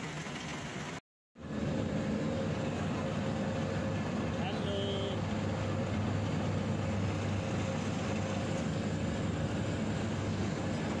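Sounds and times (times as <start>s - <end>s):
mowing machine engine drone: 0.0s - 11.0s.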